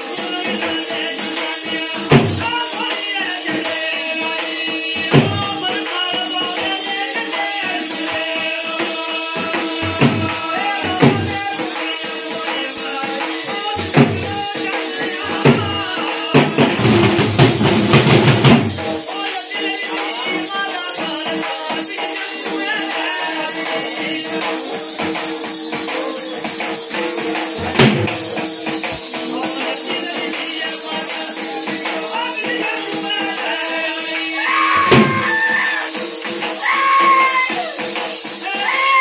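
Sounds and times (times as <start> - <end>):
devotional singing: 0.0 - 18.0, 18.6 - 25.2, 28.9 - 39.0
tambourine jingles: 0.0 - 39.0
loud drum strikes: 0.2 - 19.3, 26.6 - 30.6, 34.2 - 38.1.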